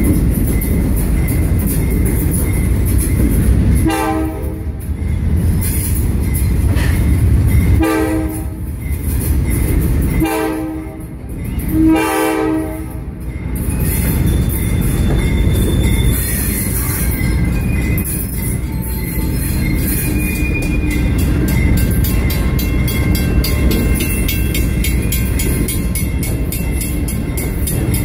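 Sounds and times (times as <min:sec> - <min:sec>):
train rumble: 0:00.0 - 0:28.0
train horn blasts: 0:03.8 - 0:04.8, 0:07.8 - 0:08.6, 0:10.2 - 0:13.0.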